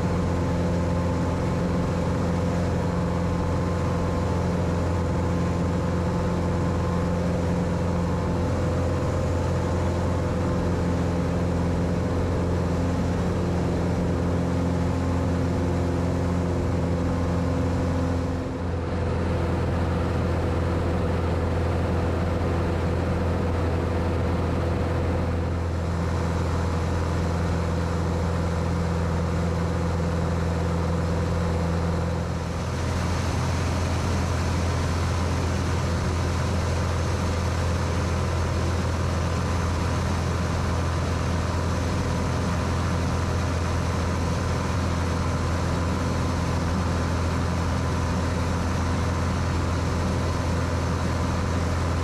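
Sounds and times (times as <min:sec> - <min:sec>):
propeller plane engine droning: 0:00.0 - 0:52.0.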